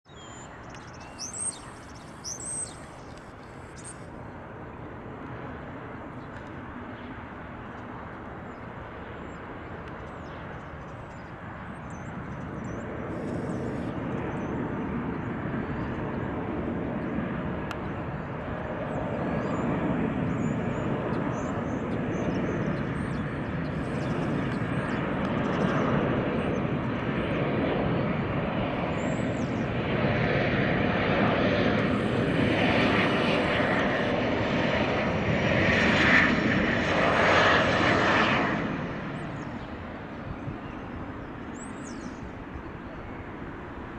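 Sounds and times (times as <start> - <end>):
jet engine noise: 0.1 - 43.9.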